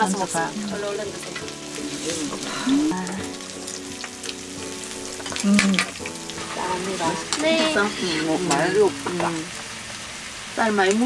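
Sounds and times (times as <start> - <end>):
food sizzling in a pan: 0.0 - 11.0
chopsticks and tableware clicking: 5.2 - 6.1.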